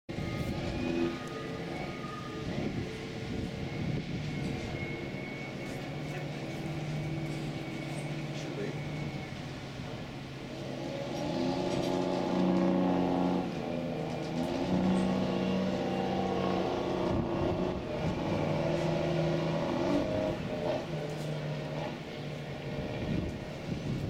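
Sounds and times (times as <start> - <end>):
low engine hum: 0.1 - 24.0.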